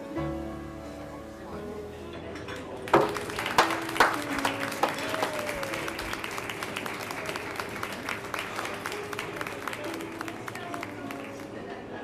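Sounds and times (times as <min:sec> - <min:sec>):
group of people applauding: 0:02.9 - 0:12.0.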